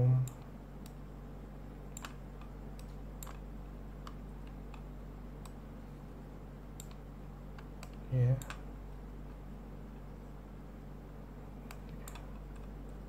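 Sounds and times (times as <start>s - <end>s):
low electrical hum: 0.0s - 13.0s
computer mouse clicking: 1.9s - 3.4s, 6.7s - 8.6s, 11.6s - 12.8s.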